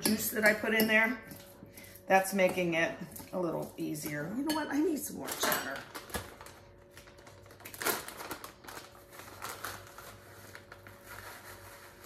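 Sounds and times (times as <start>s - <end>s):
plastic bag crinkling: 5.2s - 12.0s.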